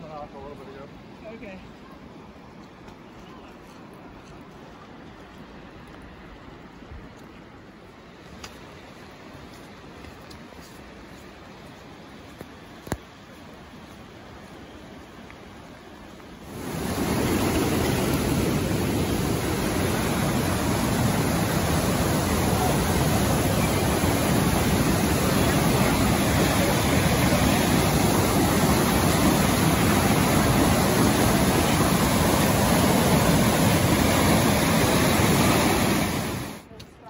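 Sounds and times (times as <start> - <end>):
water rushing over boulders: 12.2 - 36.7.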